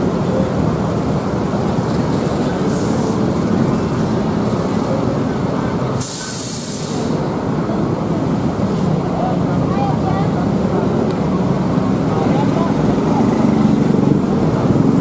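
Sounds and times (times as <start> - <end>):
diesel bus engine running: 0.0 - 15.0
compressed air hiss: 6.0 - 7.3.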